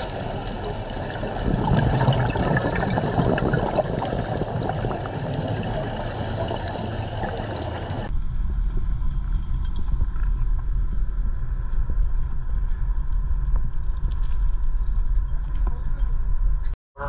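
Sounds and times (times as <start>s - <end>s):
underwater hiss and crackle: 0.0s - 8.1s
boat engine idling: 3.5s - 8.1s.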